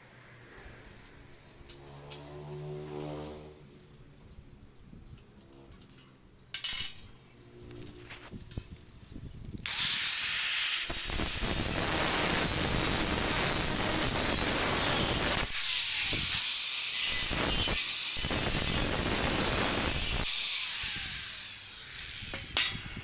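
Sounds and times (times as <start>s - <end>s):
angle grinder cutting metal: 9.7s - 23.0s.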